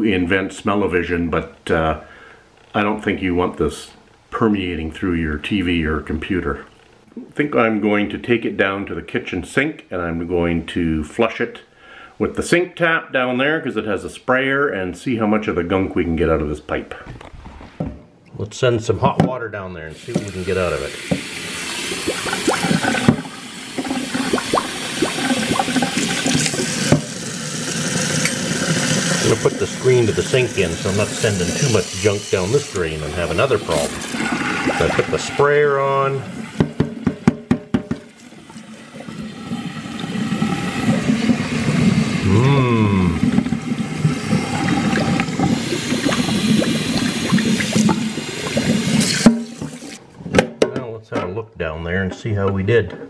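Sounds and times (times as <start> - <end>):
water splashing into steel sink: 19.9 - 42.2, 43.0 - 50.0
bubbly gurgles: 21.8 - 26.9, 28.4 - 36.6, 38.3 - 50.0.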